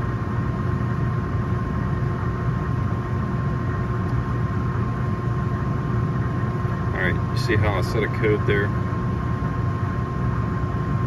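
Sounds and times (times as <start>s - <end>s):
rooftop air conditioning unit humming: 0.0s - 11.0s.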